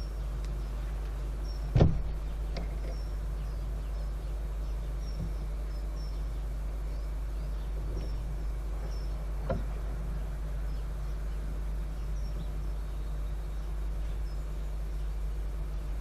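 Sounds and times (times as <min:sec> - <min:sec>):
distant diesel locomotive drone: 0:00.0 - 0:16.0
small birds chirping: 0:00.0 - 0:16.0.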